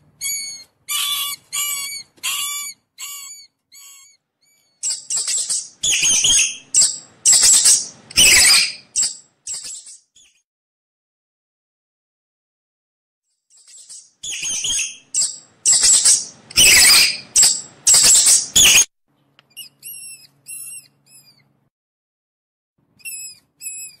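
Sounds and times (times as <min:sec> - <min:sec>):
rodent squeaking: 0:00.2 - 0:10.4, 0:13.6 - 0:18.9, 0:19.5 - 0:21.5, 0:23.0 - 0:24.0.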